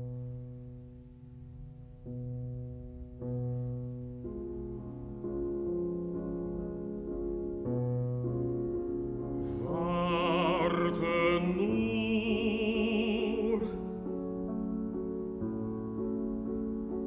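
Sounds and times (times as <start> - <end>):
piano chords: 0.0 - 17.0
operatic voice singing: 9.5 - 14.0.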